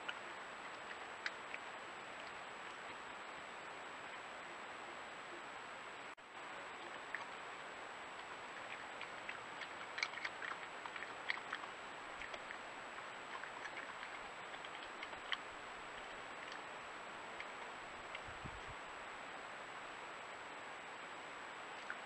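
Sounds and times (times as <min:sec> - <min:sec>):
steady hiss: 0:00.0 - 0:22.0
badger eating crunching: 0:06.7 - 0:18.7.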